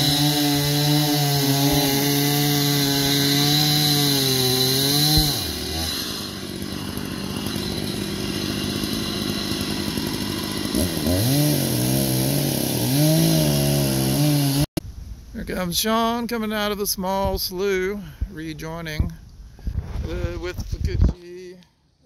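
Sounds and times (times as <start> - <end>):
chainsaw cutting wood: 0.0 - 14.7.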